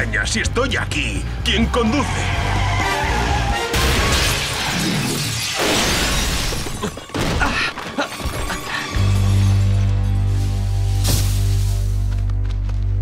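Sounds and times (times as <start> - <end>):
low music drone: 0.0 - 4.0, 8.7 - 13.0
truck crashing: 2.3 - 8.9
glass breaking: 3.7 - 8.7.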